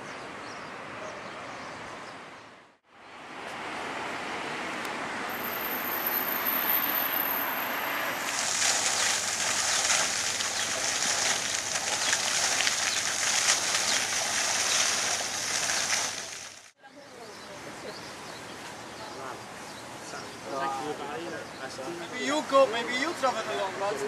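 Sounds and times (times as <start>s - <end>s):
outdoor background noise: 0.0s - 24.0s
fountain spray splashing: 5.3s - 16.8s.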